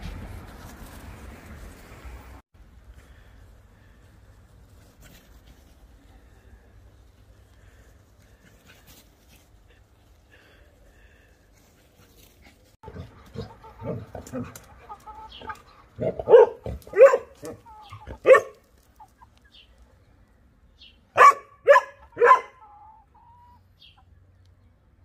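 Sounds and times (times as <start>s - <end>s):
large dog barking: 16.0s - 18.6s, 21.2s - 22.6s.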